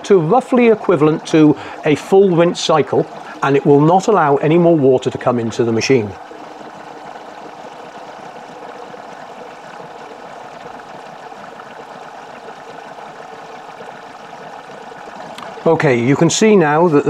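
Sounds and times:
water rushing into washing machine: 0:00.0 - 0:17.0.

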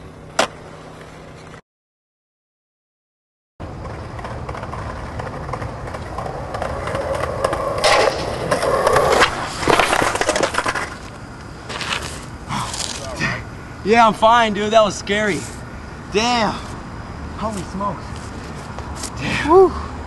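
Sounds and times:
skateboard wheels rolling on concrete: 0:00.0 - 0:01.6, 0:03.6 - 0:20.0
skateboard clacks and thuds: 0:03.6 - 0:11.2.

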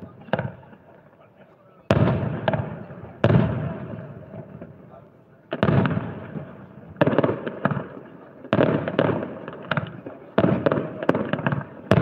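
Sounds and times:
firework booms: 0:01.9 - 0:04.7, 0:05.5 - 0:12.0
firework cracks and crackles: 0:05.5 - 0:12.0.

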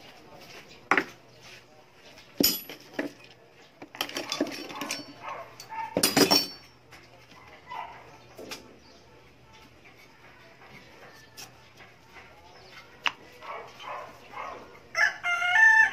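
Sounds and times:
metal clank with ring: 0:02.4 - 0:02.9, 0:04.2 - 0:06.7
metal clatter: 0:02.4 - 0:03.3, 0:03.9 - 0:06.7
metal tools clinking on workbench: 0:02.4 - 0:07.1.

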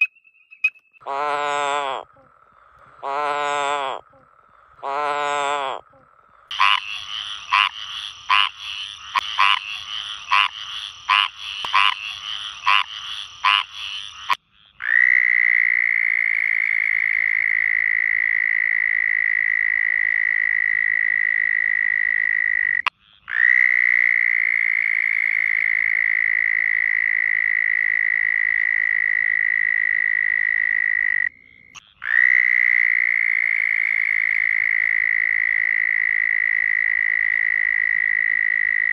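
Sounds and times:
toad trilling: 0:00.0 - 0:38.9
frog croaking: 0:01.0 - 0:38.9.

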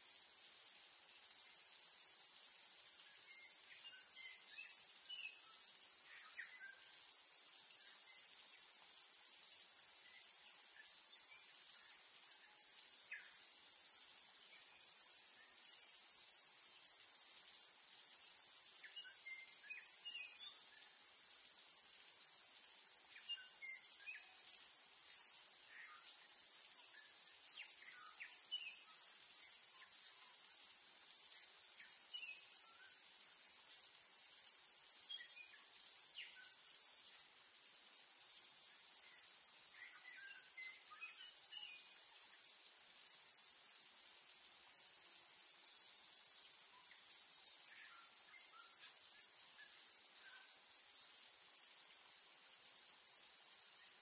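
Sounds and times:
insect chorus: 0:00.0 - 0:54.0.

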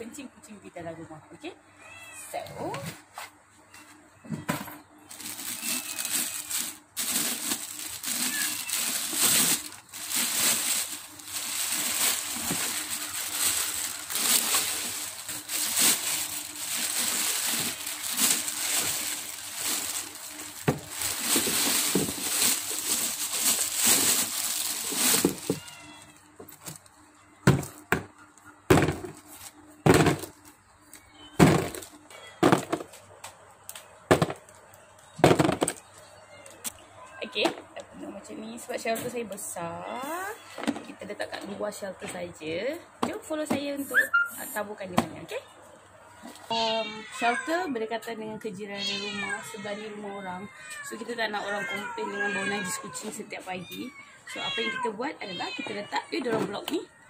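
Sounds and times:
plastic bag crinkling: 0:05.1 - 0:26.8.

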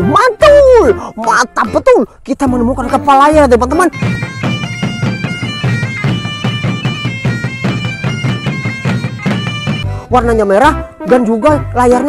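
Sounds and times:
steady drum beat: 0:03.7 - 0:10.3
bagpipe-like melody over drone: 0:03.9 - 0:10.1.

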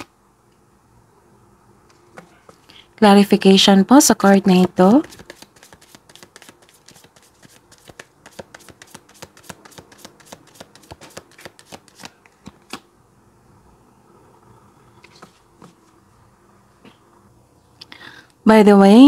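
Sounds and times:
cards being shuffled: 0:04.6 - 0:12.9.

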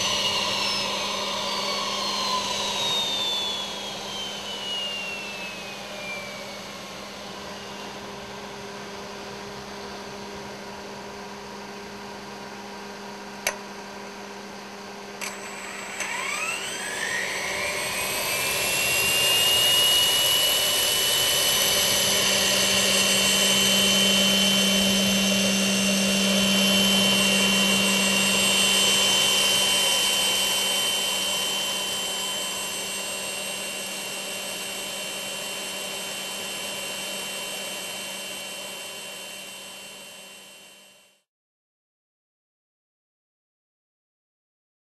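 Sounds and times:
turbojet whine: 0:00.0 - 0:41.2
steady low hum: 0:05.2 - 0:39.1.

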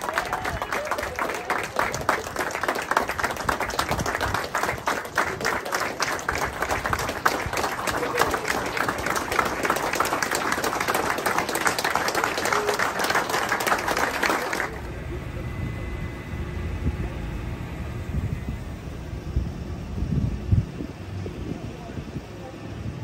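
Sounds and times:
crowd applauding: 0:00.0 - 0:15.1
voices: 0:00.0 - 0:18.6, 0:20.7 - 0:23.0.

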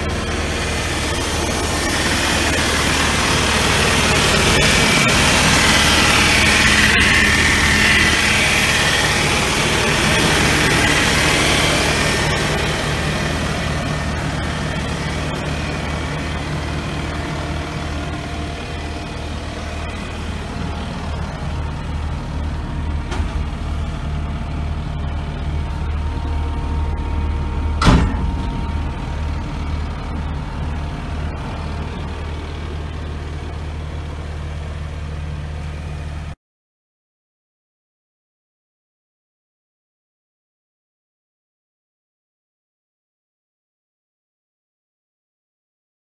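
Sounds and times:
diesel engine idling: 0:00.0 - 0:36.4
sharp knock: 0:27.8 - 0:28.7.

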